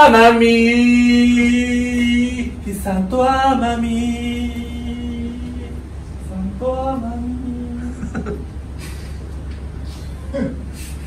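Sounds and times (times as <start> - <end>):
man singing: 0.0 - 8.2
low steady hum: 0.0 - 11.0.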